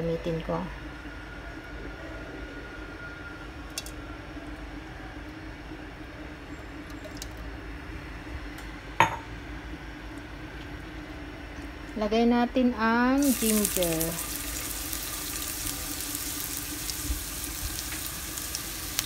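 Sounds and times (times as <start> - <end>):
steady low hum: 0.0 - 19.0
kitchenware clinking: 9.0 - 9.3.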